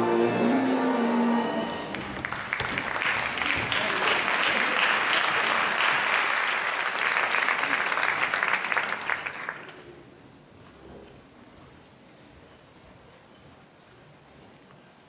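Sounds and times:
audience applauding: 1.7s - 9.9s.

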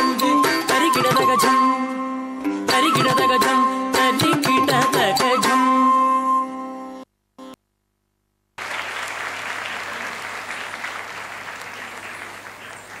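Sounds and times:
audience applause: 8.6s - 13.0s.

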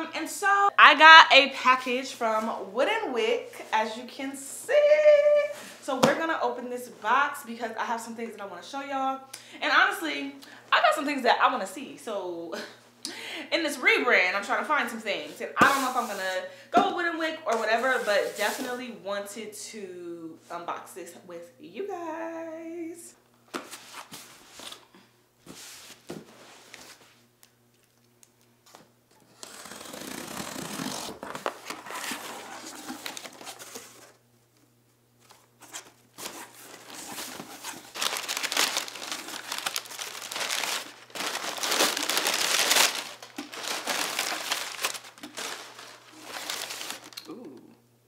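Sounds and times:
packing paper crinkling: 29.4s - 34.2s, 35.2s - 47.3s.

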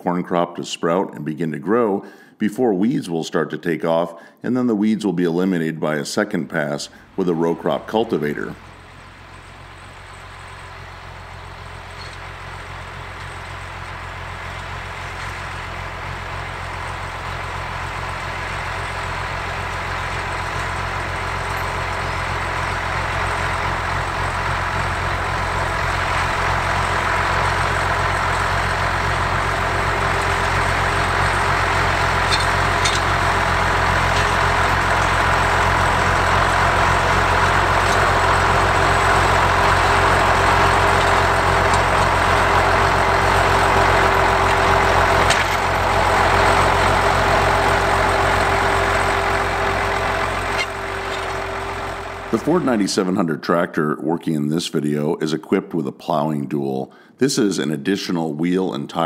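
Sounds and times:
tractor diesel engine running: 6.5s - 53.4s.

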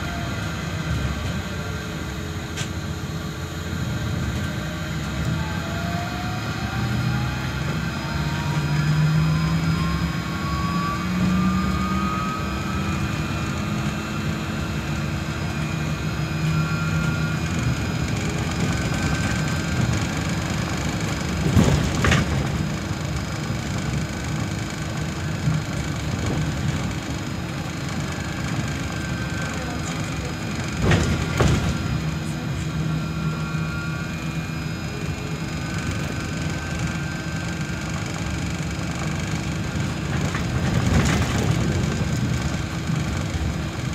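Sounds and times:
electric drive whine: 0.0s - 43.9s
tyres rumbling on road: 16.5s - 33.4s, 35.9s - 43.9s.

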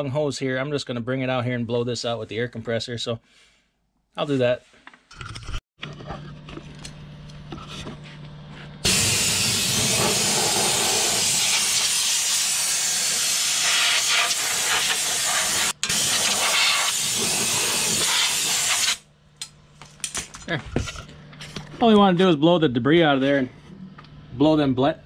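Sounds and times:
compressed air hissing: 8.8s - 19.0s.

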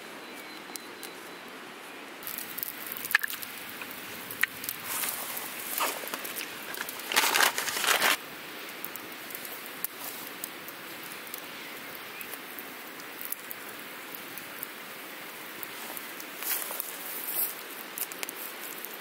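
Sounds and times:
steady low hiss: 0.0s - 19.0s
small crackles and clicks: 0.3s - 1.3s, 2.2s - 19.0s
loud rustling: 4.8s - 8.2s.

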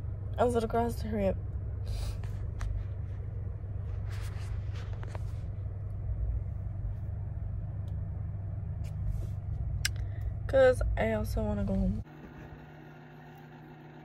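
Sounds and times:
faint rustles and clicks: 2.0s - 7.2s.

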